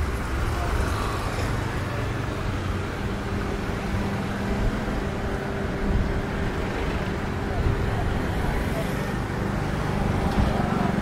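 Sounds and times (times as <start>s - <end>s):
road traffic rumble: 0.0s - 11.0s
vehicle engine hum: 0.0s - 11.0s.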